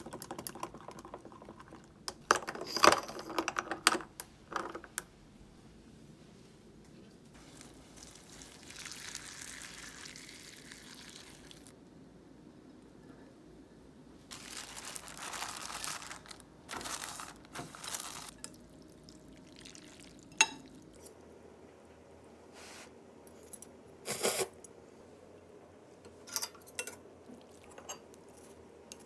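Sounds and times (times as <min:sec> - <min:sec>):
plastic packet crinkling: 0:14.3 - 0:18.4.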